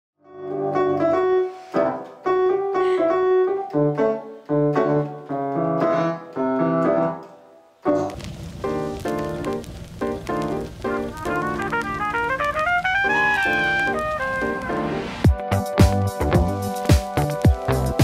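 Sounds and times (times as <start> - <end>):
piano chords on keyboard: 0.2 - 18.0
recorded music with drums: 15.0 - 18.0.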